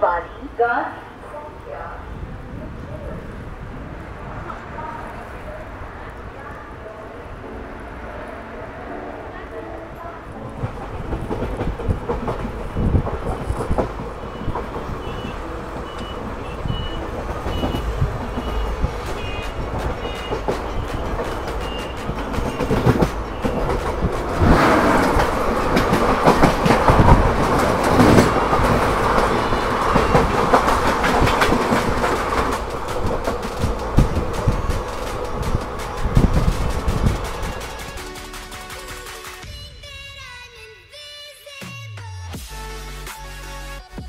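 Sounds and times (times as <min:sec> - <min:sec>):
passing train rushing: 0:00.0 - 0:40.7
train wheels rumbling and clattering: 0:09.9 - 0:39.5.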